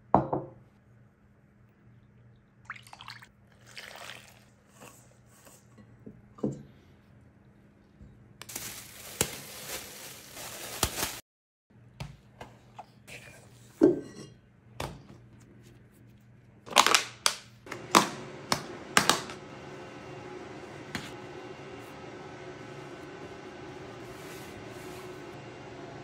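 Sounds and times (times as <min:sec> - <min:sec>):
bowl knocking on wooden counter: 0:00.2 - 0:00.6
plastic wrap crinkling: 0:08.4 - 0:11.2.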